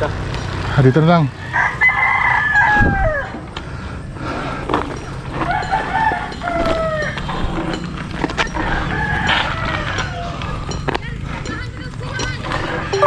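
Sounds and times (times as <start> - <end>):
roosters crowing: 1.3 - 3.5, 5.2 - 7.8, 8.4 - 10.7.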